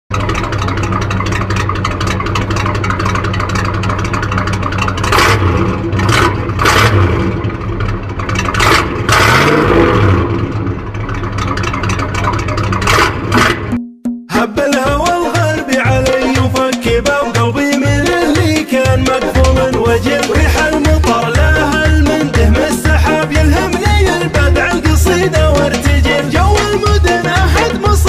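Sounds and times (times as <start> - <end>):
truck exhaust idling and revving: 0.1 - 13.8, 15.0 - 28.0.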